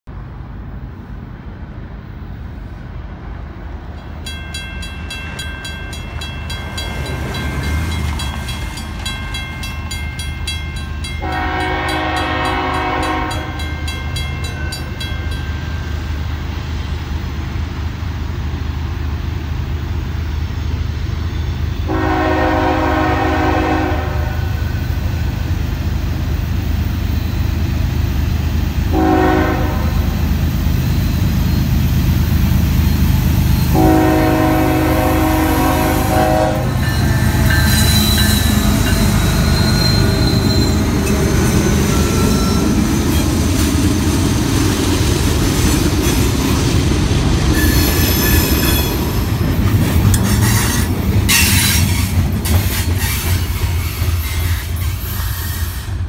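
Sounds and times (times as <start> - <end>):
locomotive rumble: 0.1 - 56.0
crossing bell ringing: 3.9 - 16.5, 32.8 - 44.0, 47.5 - 52.0
train air horn blasts: 11.2 - 13.7, 21.8 - 24.6, 28.9 - 30.1, 33.7 - 40.9.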